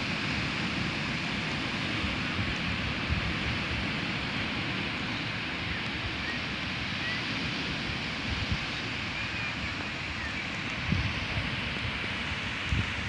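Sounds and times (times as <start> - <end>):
ocean surf breaking on a beach: 0.0 - 13.0
wind gusting on microphone: 0.0 - 13.0.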